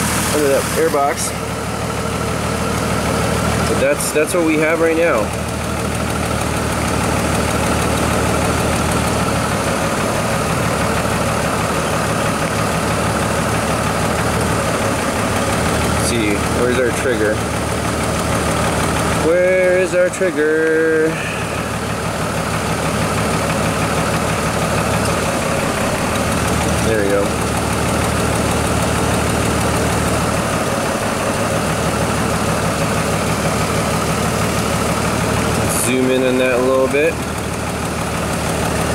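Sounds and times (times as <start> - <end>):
car engine idling with misfire: 0.0 - 38.9.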